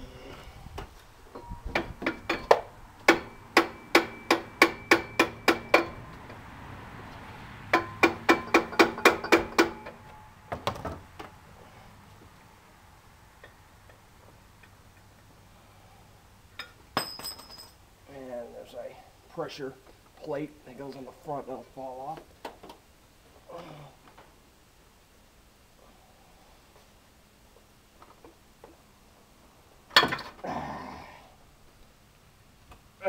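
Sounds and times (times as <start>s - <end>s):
hammer striking metal: 1.7s - 6.0s, 7.7s - 10.3s.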